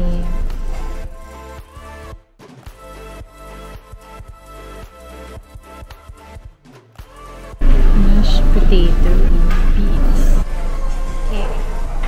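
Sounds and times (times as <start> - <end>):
room noise and voices: 0.0 - 1.1, 7.6 - 12.0
quiet background music: 0.0 - 12.0.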